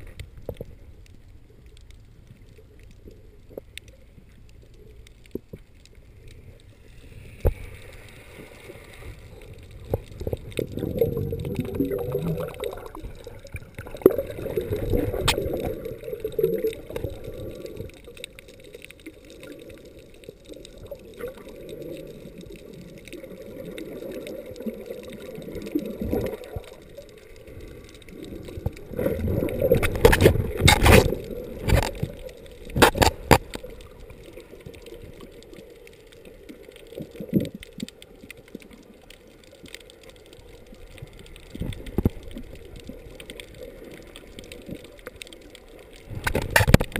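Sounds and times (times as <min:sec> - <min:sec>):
muffled underwater water gurgling: 0:00.0 - 0:46.9
sharp clicks and knocks: 0:32.7 - 0:33.6, 0:46.2 - 0:46.9.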